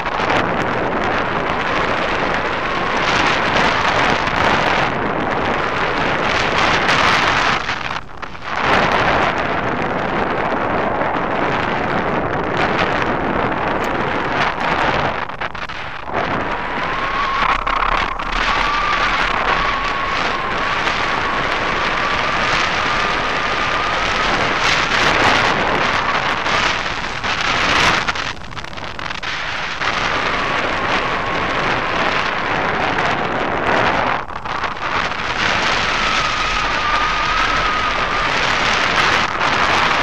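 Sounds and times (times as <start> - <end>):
wind buffeting microphone: 0.0 - 40.0
faint thin rising whistle: 16.8 - 24.9.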